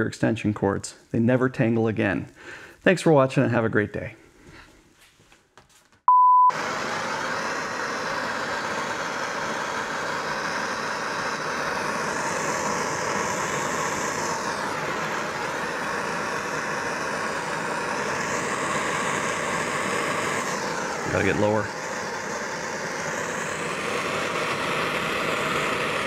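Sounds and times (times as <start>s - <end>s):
short electronic beep: 6.1s - 6.5s
gas torch flame hissing: 6.5s - 26.0s.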